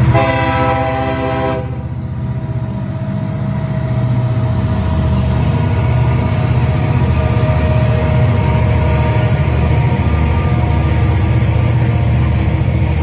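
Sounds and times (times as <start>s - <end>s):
locomotive horn: 0.0s - 2.0s, 7.4s - 11.1s
diesel engines rumbling past: 0.0s - 13.0s.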